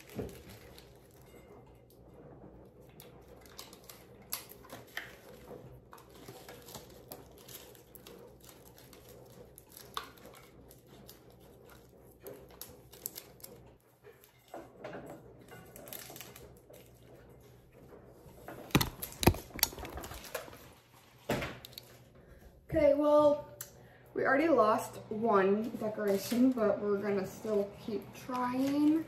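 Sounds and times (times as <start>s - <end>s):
paper and foil rustling: 0.0s - 1.2s, 3.4s - 13.6s, 15.6s - 17.1s, 18.6s - 21.0s.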